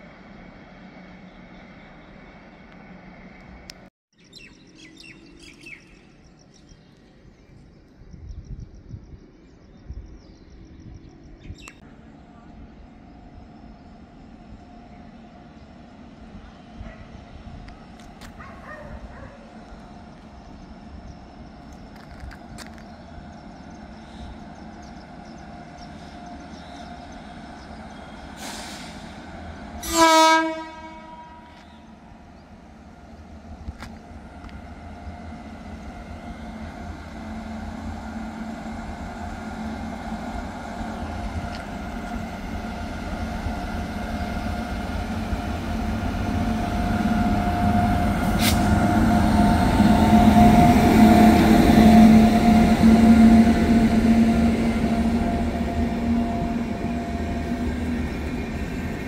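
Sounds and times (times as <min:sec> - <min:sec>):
locomotive hum: 0:00.0 - 0:03.9, 0:06.0 - 0:59.0
train wheels rumbling on rails: 0:09.8 - 0:59.0
train horn blast: 0:29.8 - 0:31.8, 0:46.4 - 0:57.6.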